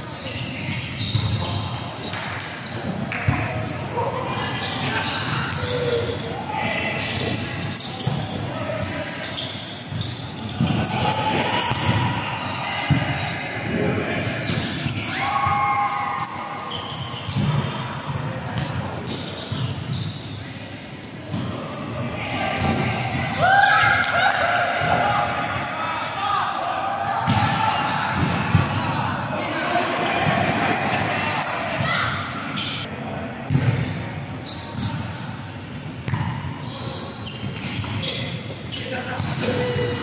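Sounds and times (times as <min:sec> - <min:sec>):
shoes squeaking on court floor: 0:00.3 - 0:13.6, 0:14.2 - 0:23.4, 0:33.5 - 0:40.0.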